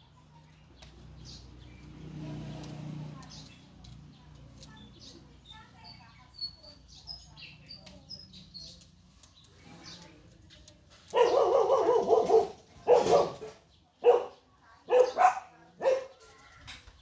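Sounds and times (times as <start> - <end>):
dog barking: 11.1 - 16.2.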